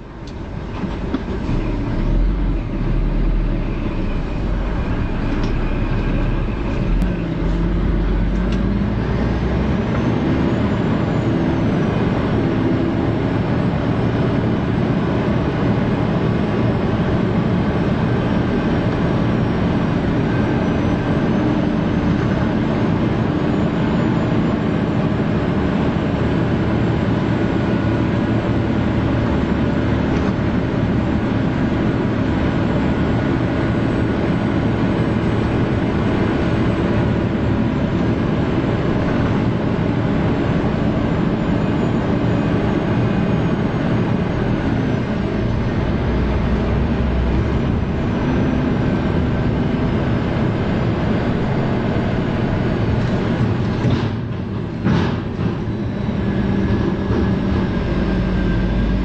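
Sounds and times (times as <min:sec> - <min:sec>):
vehicle engine and road noise: 0:00.0 - 0:59.0
deep hum: 0:01.3 - 0:10.6.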